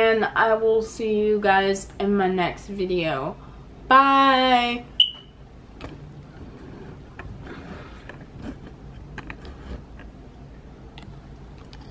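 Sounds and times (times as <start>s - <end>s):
rubbing against camera body: 6.3s - 10.0s.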